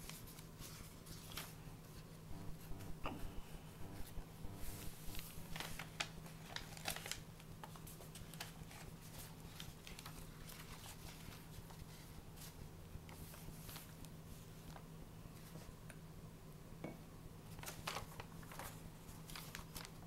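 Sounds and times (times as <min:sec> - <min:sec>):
paper pages rustling: 0:00.0 - 0:01.6, 0:04.7 - 0:14.0, 0:17.5 - 0:20.0
steady low hum: 0:02.2 - 0:07.1.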